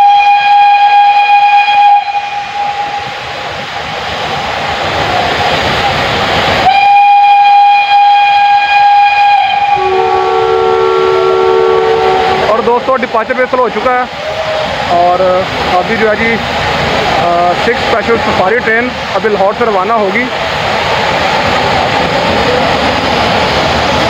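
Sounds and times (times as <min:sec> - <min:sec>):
steam locomotive whistle: 0:00.0 - 0:03.3, 0:06.6 - 0:12.6, 0:14.2 - 0:14.8
steam hissing: 0:00.0 - 0:24.0.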